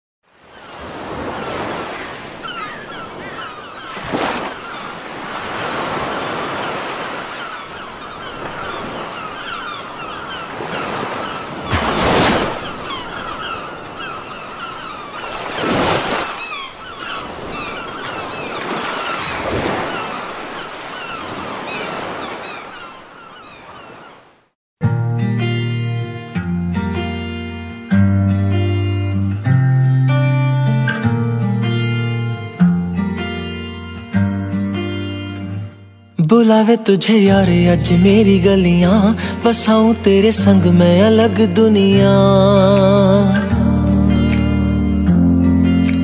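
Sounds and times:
waves washing: 0.3s - 24.5s, 37.5s - 44.7s.

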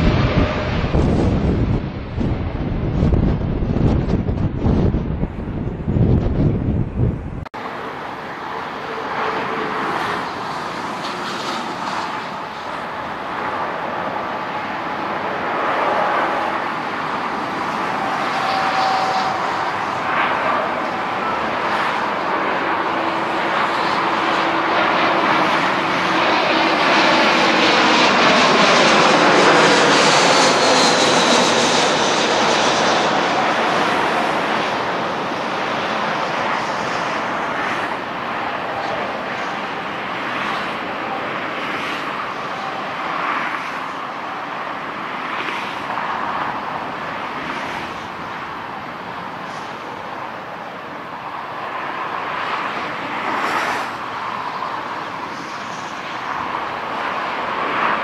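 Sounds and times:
jet airliner passing overhead: 0.0s - 58.0s
jet whine falling in pitch: 17.4s - 35.4s.

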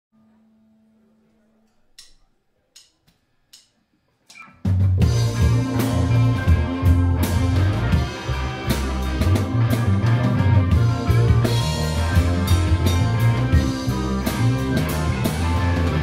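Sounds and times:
bass guitar: 4.3s - 16.0s
drum kit: 4.3s - 16.0s
electric guitars: 4.3s - 16.0s.

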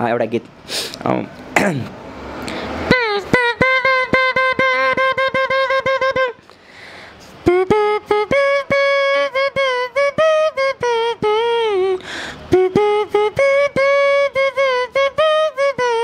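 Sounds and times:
quick breath drawn in: 0.6s - 1.0s, 2.4s - 2.9s, 6.5s - 7.4s, 12.0s - 12.5s.

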